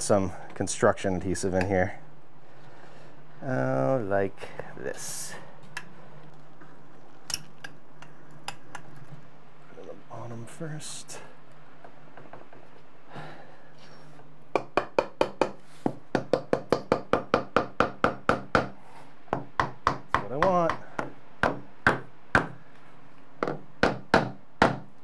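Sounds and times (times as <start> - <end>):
hammer knocking on wood: 14.6 - 22.6, 23.4 - 24.9.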